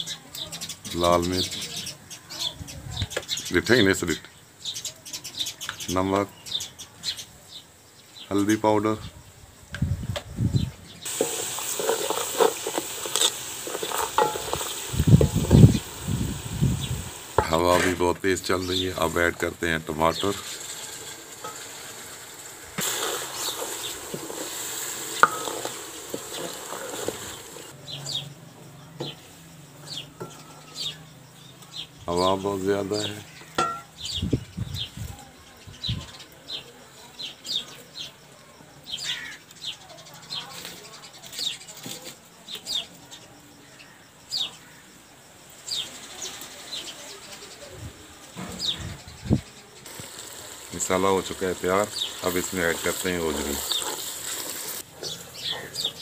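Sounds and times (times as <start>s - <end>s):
small bird chirping: 0.0s - 56.0s
wind buffeting microphone: 9.0s - 10.9s, 14.4s - 17.4s, 34.0s - 36.2s, 47.7s - 49.5s
onions sizzling in oil: 11.0s - 28.2s, 32.1s - 35.0s, 44.4s - 56.0s
wooden spoon scraping a pot: 11.1s - 15.9s, 20.2s - 27.7s, 49.9s - 56.0s.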